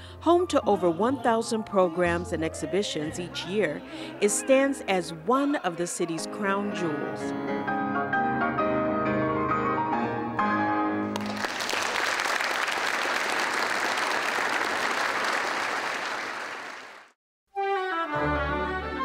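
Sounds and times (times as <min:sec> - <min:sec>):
piano music: 0:06.2 - 0:11.6
audience applauding: 0:11.2 - 0:17.2.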